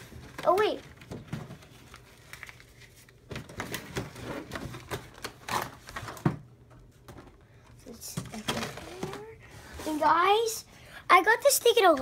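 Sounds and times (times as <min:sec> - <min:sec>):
plastic packaging crinkling: 0:00.0 - 0:06.2.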